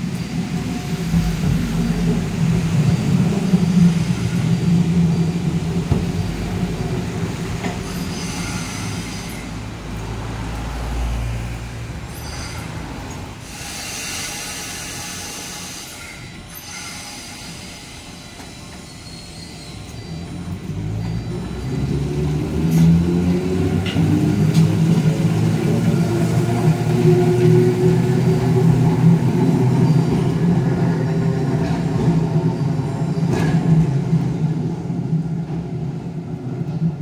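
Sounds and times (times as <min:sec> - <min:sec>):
tram motor hum and rail rumble: 0:00.0 - 0:37.0
high brake squeals: 0:07.8 - 0:09.8, 0:12.0 - 0:22.0, 0:29.4 - 0:30.9.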